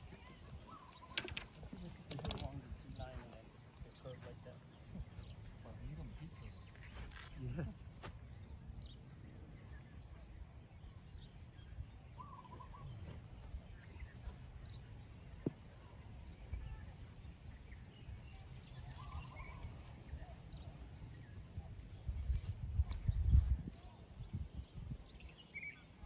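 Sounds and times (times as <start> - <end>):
faint bird chirps: 0.0 - 26.0
wind rumble on microphone: 16.3 - 25.4.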